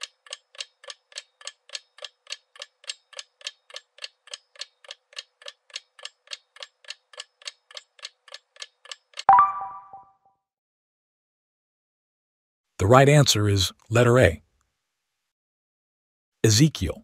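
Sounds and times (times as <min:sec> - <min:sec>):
clock ticking: 0:00.0 - 0:09.3.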